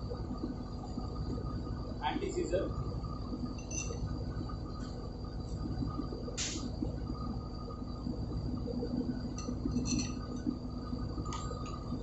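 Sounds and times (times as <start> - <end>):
steady machinery hum: 0.0 - 12.0
metal tools clinking on steel: 3.6 - 4.0, 9.4 - 10.3.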